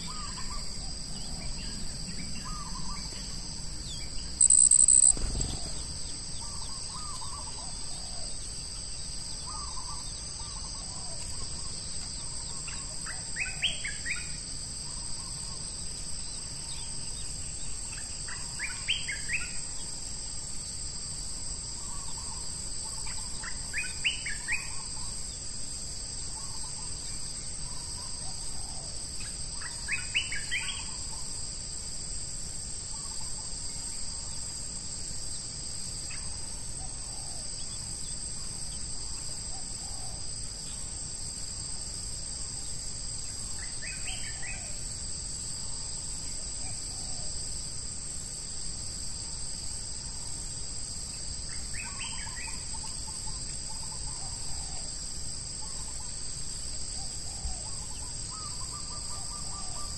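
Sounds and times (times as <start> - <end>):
bird calls: 0.0 - 8.5
insects droning: 0.0 - 59.9.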